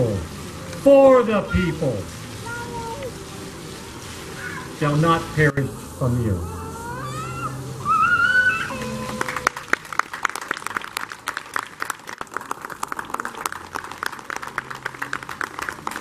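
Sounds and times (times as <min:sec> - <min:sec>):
audience applause: 0:08.5 - 0:16.0.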